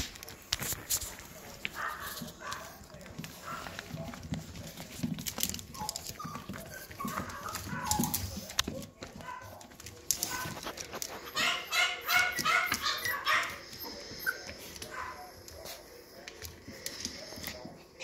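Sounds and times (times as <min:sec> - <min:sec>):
puppies yipping and whining: 0:05.2 - 0:08.6, 0:10.3 - 0:14.8.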